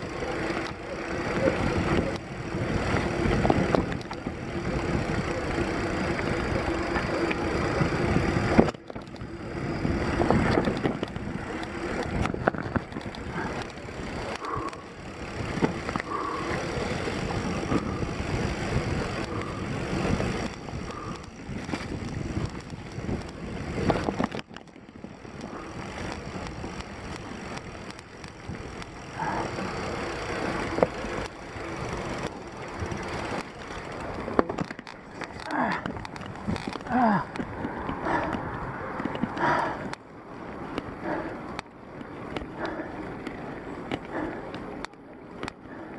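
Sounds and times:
bike rattling over bumps: 0:00.0 - 0:45.9
bike tyres on dirt trail: 0:00.0 - 0:45.9.

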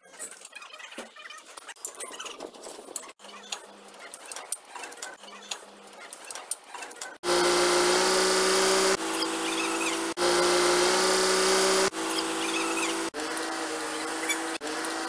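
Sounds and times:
machine motor whining: 0:07.2 - 0:15.0.

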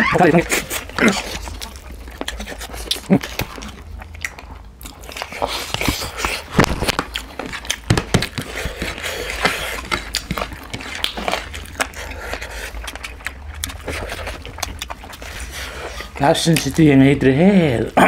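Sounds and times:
chewing and lip-smacking: 0:00.0 - 0:18.0
heavy breathing: 0:08.4 - 0:10.0, 0:15.2 - 0:16.2.

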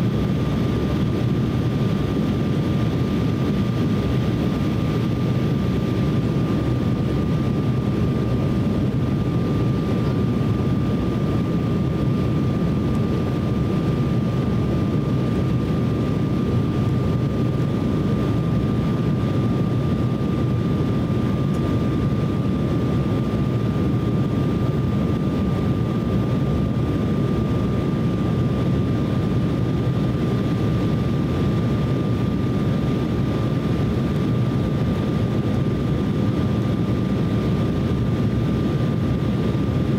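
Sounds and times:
airflow rush in aircraft cabin: 0:00.0 - 0:39.9
jet engines: 0:00.0 - 0:39.9.

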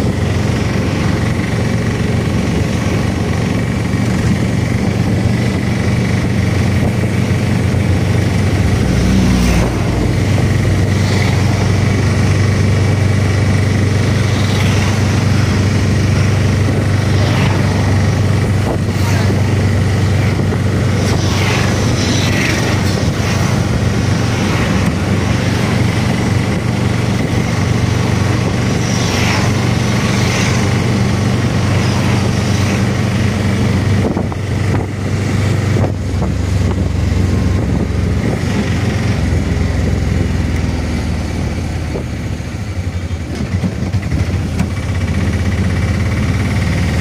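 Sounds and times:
low engine drone: 0:00.0 - 0:47.0
rushing road noise: 0:00.0 - 0:47.0.

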